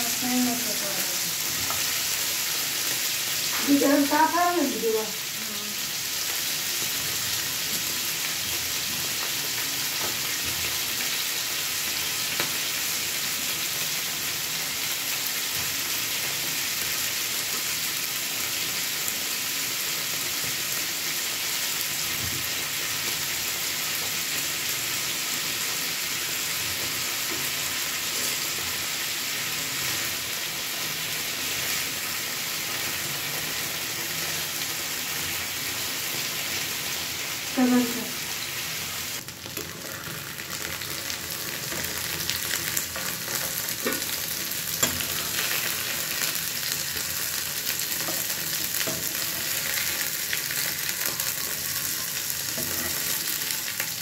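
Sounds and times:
food sizzling in oil: 0:00.0 - 0:54.0.

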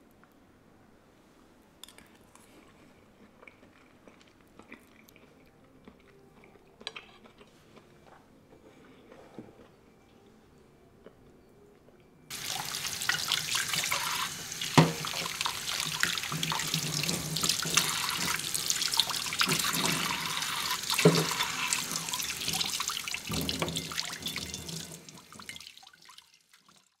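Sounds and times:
tap water running into sink: 0:12.3 - 0:26.9.

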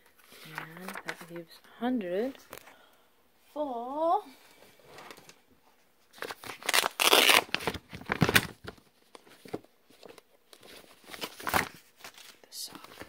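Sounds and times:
paper rustling and crinkling: 0:00.0 - 0:02.7, 0:06.0 - 0:13.0.

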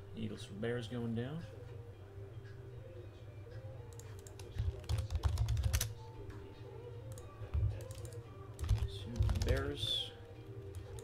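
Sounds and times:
typing on computer keyboard: 0:04.0 - 0:05.9, 0:07.1 - 0:09.7.

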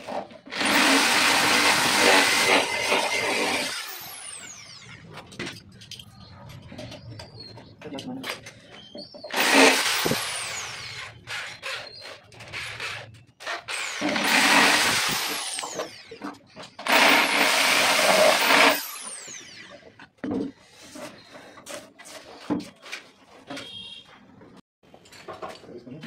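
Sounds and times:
hand drill boring into board: 0:00.0 - 0:04.9, 0:09.2 - 0:20.1
knocks and handling clatter: 0:05.0 - 0:09.4, 0:19.8 - 0:26.0.

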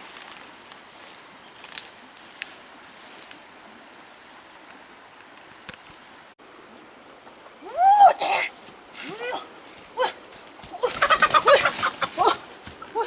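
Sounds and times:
twigs cracking: 0:00.0 - 0:02.6
rustling leaves and branches: 0:00.0 - 0:13.0.

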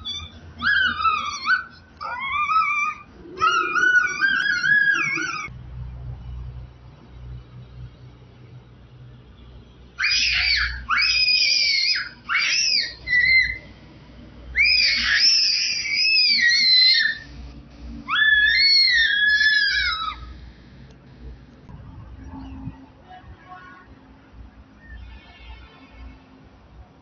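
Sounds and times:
small child squealing: 0:00.0 - 0:05.5, 0:10.0 - 0:13.6, 0:14.6 - 0:17.2, 0:18.1 - 0:20.4.

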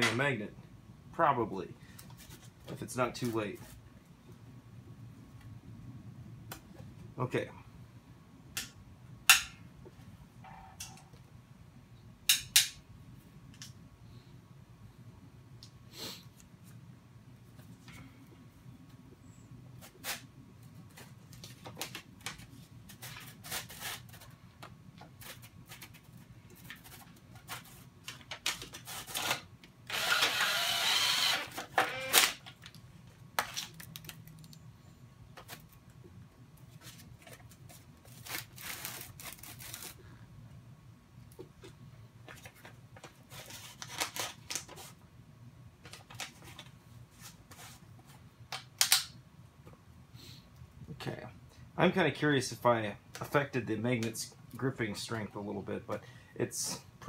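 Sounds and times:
cordless drill drilling metal: 0:29.2 - 0:32.4.

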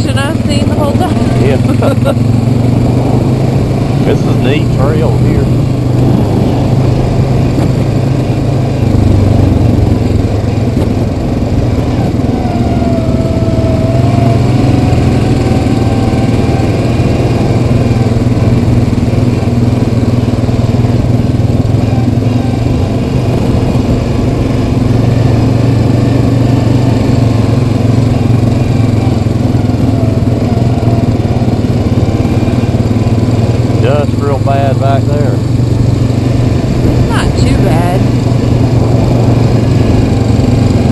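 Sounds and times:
atv engine running: 0:00.0 - 0:40.9.

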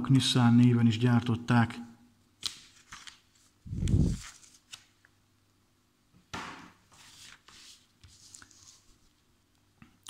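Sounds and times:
magazine page rustling: 0:02.4 - 0:05.0, 0:06.9 - 0:09.2.

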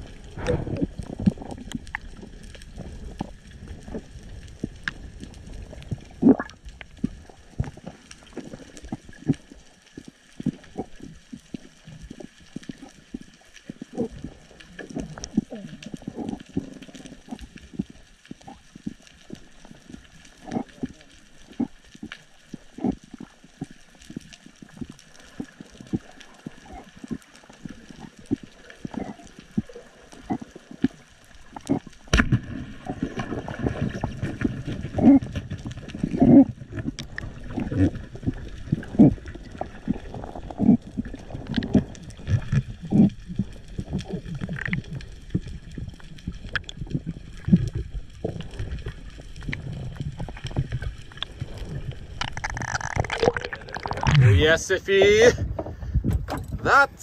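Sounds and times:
low rushing of water: 0:44.3 - 0:57.0
underwater clicks and knocks: 0:46.4 - 0:54.2, 0:55.4 - 0:56.6.

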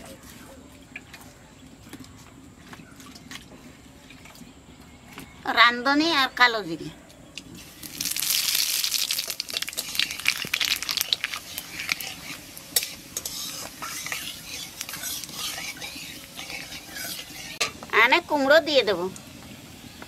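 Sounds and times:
seeds sizzling in hot oil: 0:07.5 - 0:20.0.

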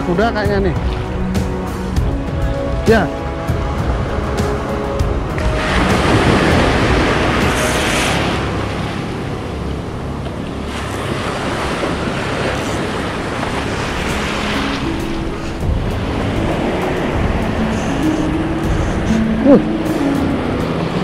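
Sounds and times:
wind buffeting microphone: 0:00.0 - 0:21.0
surf breaking in shallows: 0:05.4 - 0:09.6, 0:10.2 - 0:18.4.

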